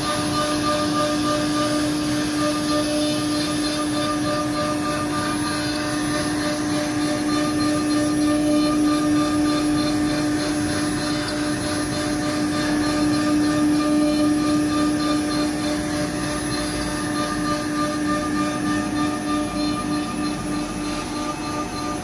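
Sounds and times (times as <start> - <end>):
router spindle whine: 0.0 - 22.0.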